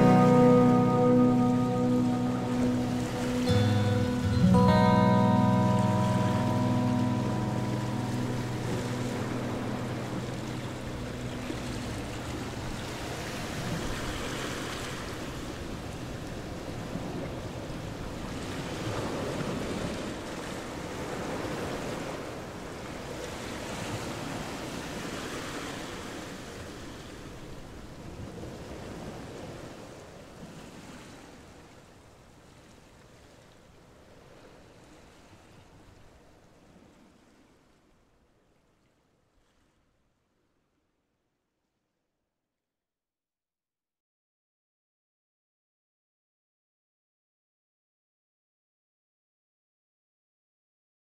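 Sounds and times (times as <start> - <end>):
soft music: 0.0 - 14.0
wind blowing: 0.0 - 22.8
waves lapping against shore: 0.0 - 40.5.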